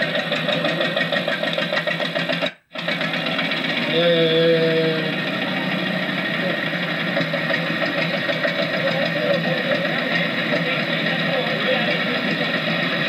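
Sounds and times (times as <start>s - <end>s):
tractor engines running: 0.0s - 13.0s.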